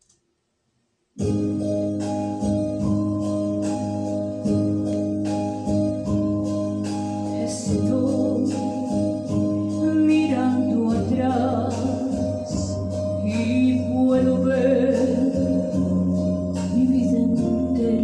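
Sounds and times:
instrumental backing of held chords: 0:01.2 - 0:18.0
woman singing: 0:07.3 - 0:18.0.

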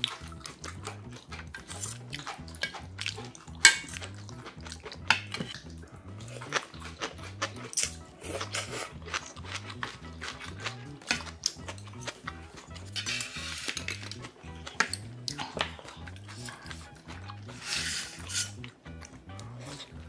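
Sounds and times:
eating mouth sounds: 0:00.0 - 0:20.0
faint background music with beat: 0:00.0 - 0:20.0
utensils clinking on metal bowls: 0:03.6 - 0:04.2, 0:12.8 - 0:15.7.

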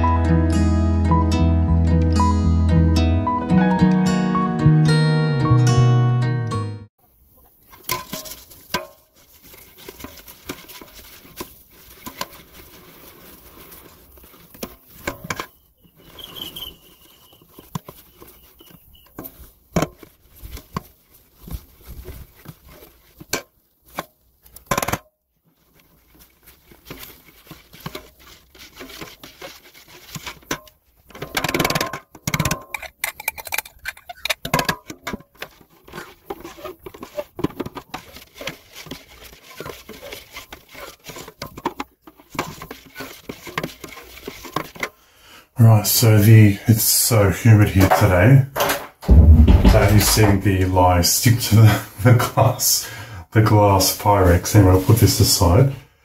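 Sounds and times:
spatula scraping a metal pot: 0:07.7 - 0:21.0, 0:26.7 - 0:31.6, 0:32.4 - 0:45.0.

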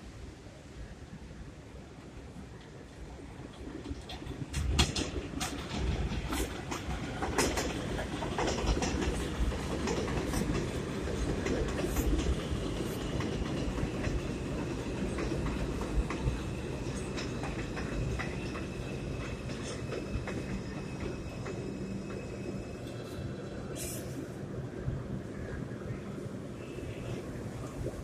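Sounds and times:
subway train rolling: 0:00.0 - 0:28.0
wheels clacking over rail joints: 0:03.5 - 0:23.0.

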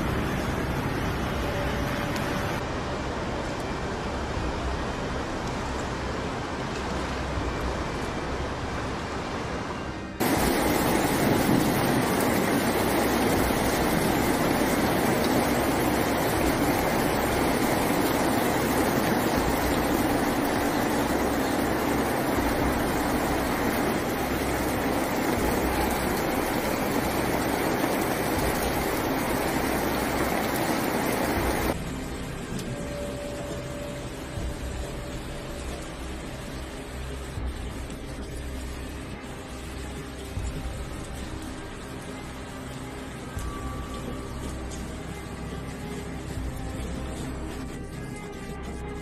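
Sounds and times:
hail pelting street and cars: 0:10.2 - 0:43.5.

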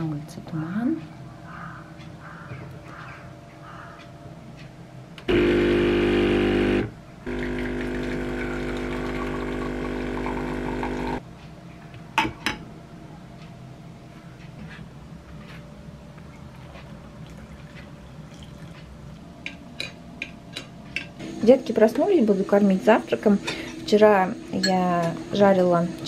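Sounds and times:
espresso machine pump humming: 0:05.2 - 0:11.2.

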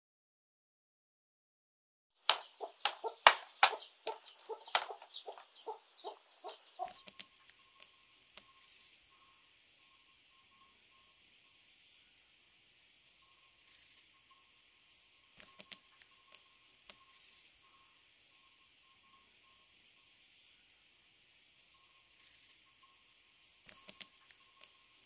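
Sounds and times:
bamboo clacking together: 0:02.2 - 0:05.5, 0:23.7 - 0:24.7
high insect drone: 0:02.2 - 0:25.0.

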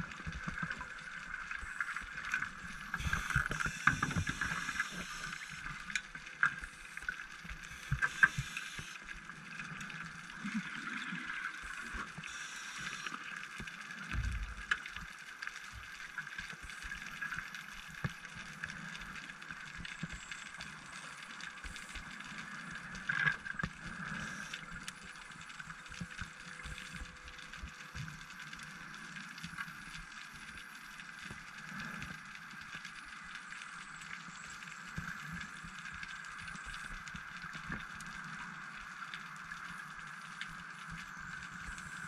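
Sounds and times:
underwater hiss: 0:00.0 - 0:14.8, 0:16.1 - 0:27.0
small clicks: 0:00.1 - 0:42.0.

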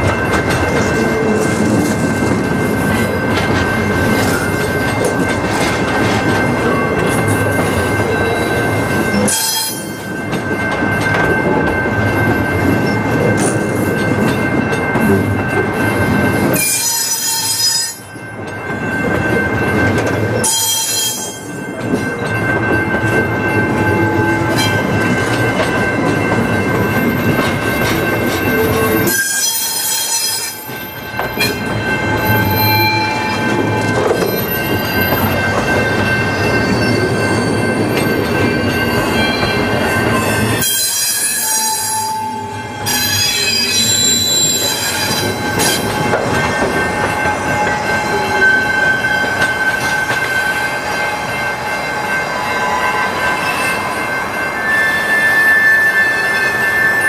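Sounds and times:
train wheels rumbling on rails: 0:00.0 - 0:57.0
high-pitched wheel squeal: 0:54.6 - 0:57.0.

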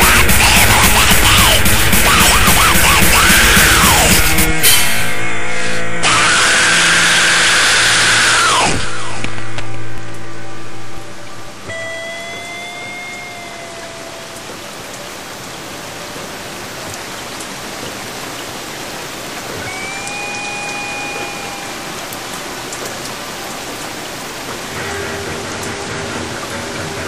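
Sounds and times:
long held tones: 0:10.2 - 0:14.8, 0:19.6 - 0:22.6
rain-like hiss with ticks: 0:11.0 - 0:27.0.

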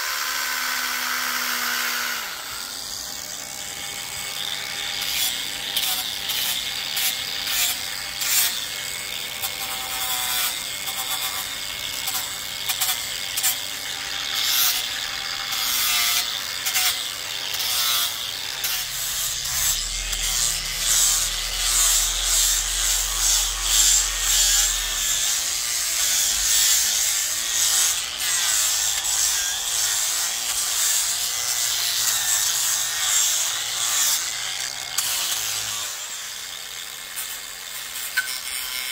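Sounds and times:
angle grinder motor whining: 0:00.0 - 0:38.9
sanding disc scraping wood: 0:05.0 - 0:32.9.

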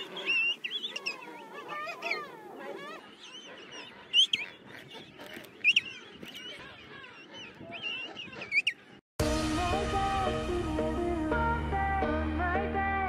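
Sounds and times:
penguin colony calling: 0:00.0 - 0:05.9.

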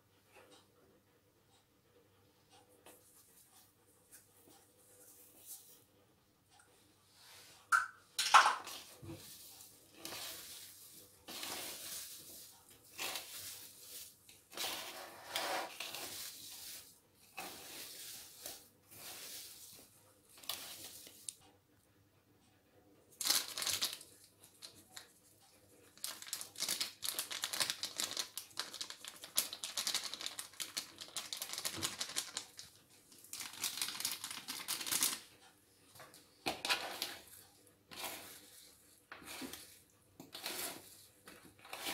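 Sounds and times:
plastic bag crinkling: 0:23.2 - 0:25.1, 0:25.9 - 0:35.2.

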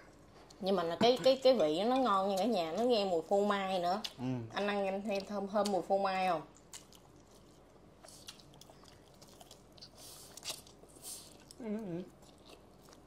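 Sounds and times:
person chewing food: 0:06.5 - 0:13.0.

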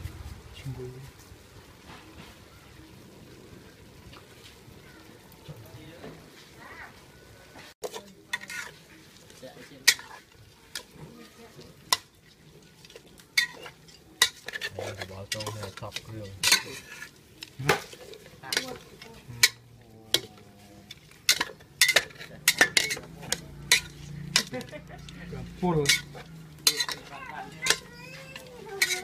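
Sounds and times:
metal spatula scraping pot: 0:07.8 - 0:29.0.

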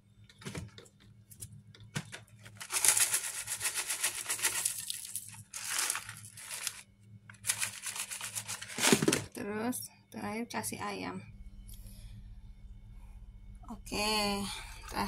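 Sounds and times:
faint low hum: 0:00.0 - 0:15.0
fried shallots crackling: 0:02.6 - 0:09.0.

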